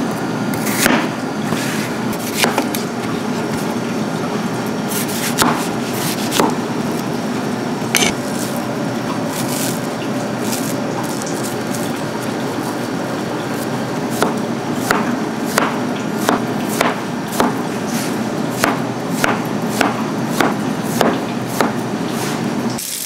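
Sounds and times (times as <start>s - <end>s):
knife cutting on a cutting board: 0.5s - 2.8s, 4.9s - 6.6s, 7.9s - 8.6s, 9.3s - 9.8s, 13.5s - 22.4s
kitchen noise: 0.5s - 23.0s.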